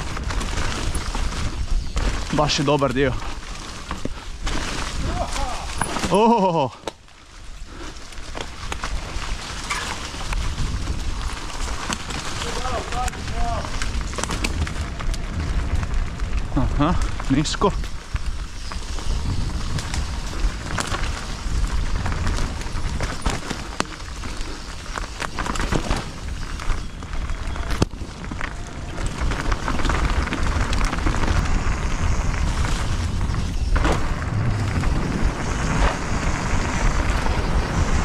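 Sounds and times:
bike rattling: 0.0s - 38.0s
bike tyres crackling on dirt: 0.0s - 38.0s
low rumble: 28.3s - 38.0s.

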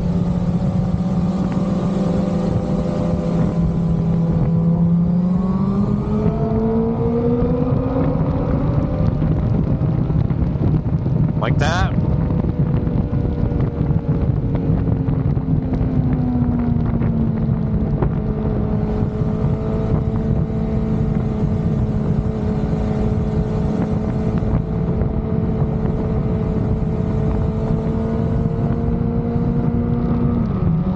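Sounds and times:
motorcycle engine cruising: 0.0s - 30.9s
wind rushing over microphone: 0.0s - 30.9s.

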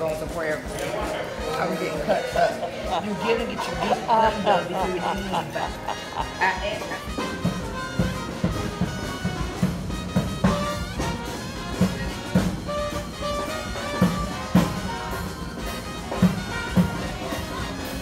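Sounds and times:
brass band jazz music: 0.0s - 18.0s
loud drum hits: 7.0s - 17.8s.

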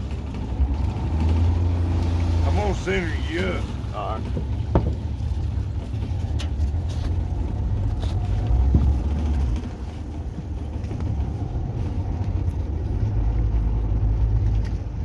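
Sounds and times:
outboard motor running: 0.0s - 15.0s
light knocks: 4.3s - 5.2s.

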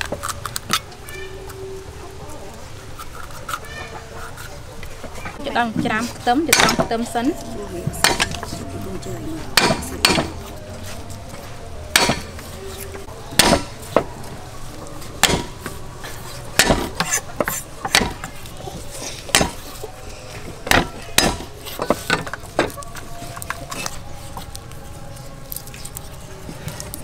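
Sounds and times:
cleaver chopping on wooden board: 6.5s - 6.9s, 8.0s - 8.4s, 9.6s - 10.4s, 11.9s - 12.4s, 13.4s - 14.0s, 15.2s - 15.7s, 16.6s - 18.3s, 19.3s - 19.7s, 20.6s - 22.8s.

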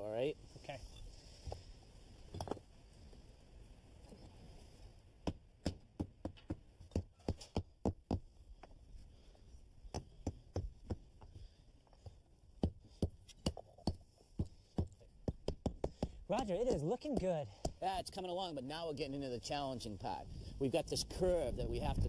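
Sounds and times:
bricks knocking and clacking: 2.3s - 2.7s, 9.9s - 18.2s.

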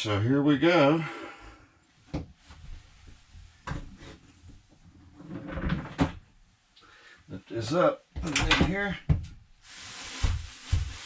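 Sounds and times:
rustling scrape: 9.6s - 11.0s.

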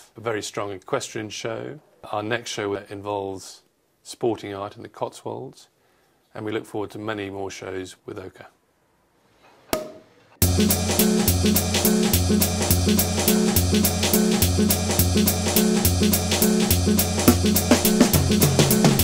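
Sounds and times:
music with steady drum beat: 10.4s - 19.0s.

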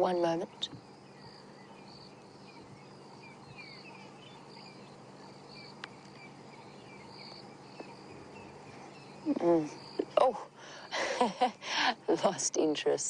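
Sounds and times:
insects trilling in bursts: 0.0s - 13.0s
low steady hum: 0.0s - 13.0s
small bird chirps: 0.6s - 10.9s.

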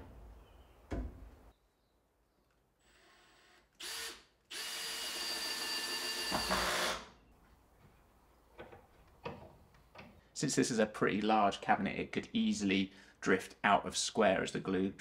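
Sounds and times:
cordless drill driving screws: 2.8s - 7.1s.

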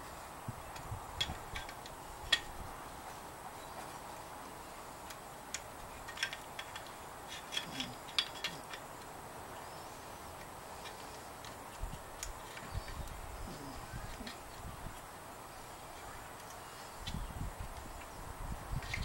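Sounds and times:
small metal parts clicking: 5.0s - 9.1s.

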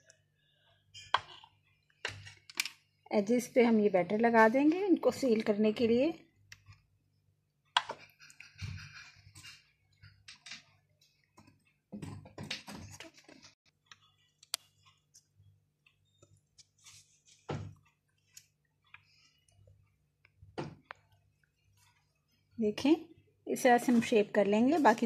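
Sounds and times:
soft rustles: 16.5s - 18.5s.

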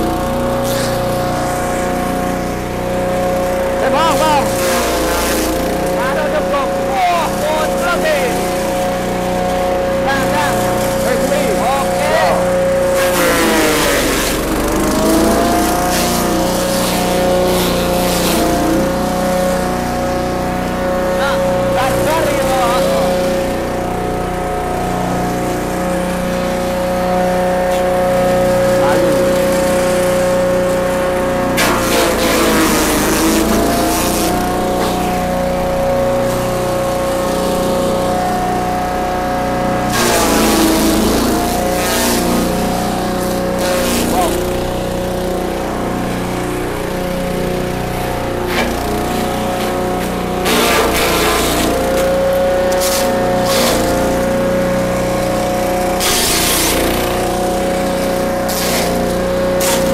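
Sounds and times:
forage chopper engine whine: 0.0s - 59.9s
blades shredding stalks: 3.5s - 20.1s, 25.0s - 38.8s, 39.6s - 44.8s, 47.6s - 59.9s.

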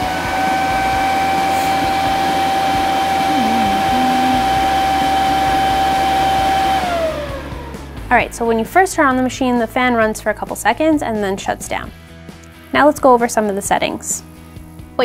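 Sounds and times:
cooling fan whining: 0.0s - 8.1s.

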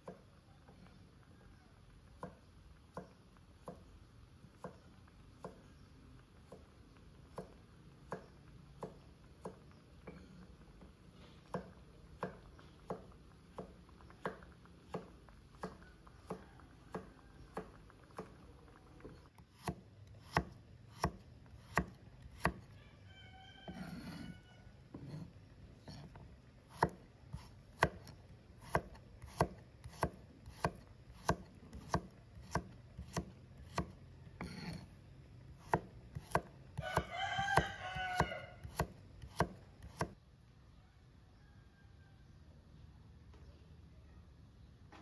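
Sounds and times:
knife chopping on wooden block: 19.5s - 22.6s, 25.8s - 34.8s, 35.6s - 40.2s.

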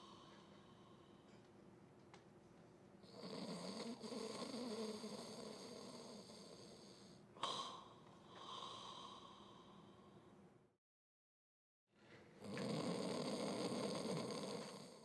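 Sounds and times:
dog snoring: 3.0s - 10.0s, 12.4s - 15.0s.

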